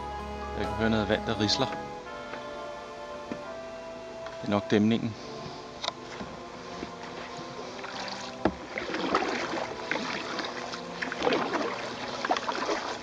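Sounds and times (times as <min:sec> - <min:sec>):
paddle strokes splashing in water: 0:05.4 - 0:13.0.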